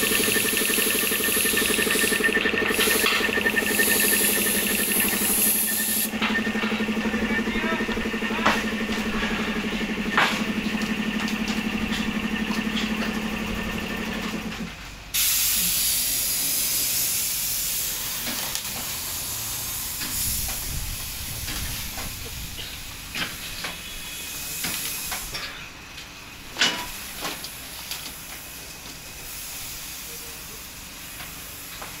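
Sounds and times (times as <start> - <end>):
loud steady hiss: 0.0 - 6.1, 15.1 - 25.4, 26.2 - 32.0
engine humming: 0.0 - 14.8
scattered clicks and knocks: 0.0 - 14.8.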